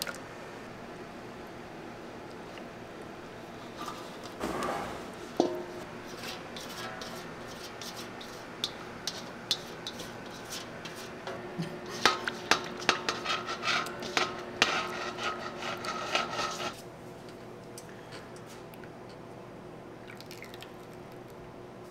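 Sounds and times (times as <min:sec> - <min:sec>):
pans clattering and scraping: 0:03.7 - 0:07.3, 0:08.6 - 0:16.8.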